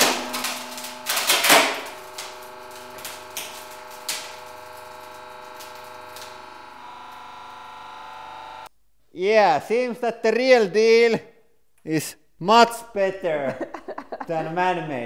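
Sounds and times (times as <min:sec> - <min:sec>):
wooden board cracking: 0:00.0 - 0:07.5
steady hum: 0:00.0 - 0:08.7.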